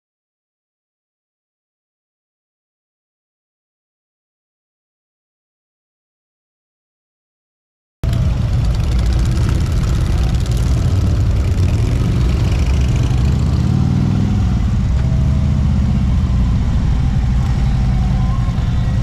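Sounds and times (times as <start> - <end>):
motorcycle engine revving: 8.0 - 19.0
motorcycles idling and pulling away: 8.0 - 19.0.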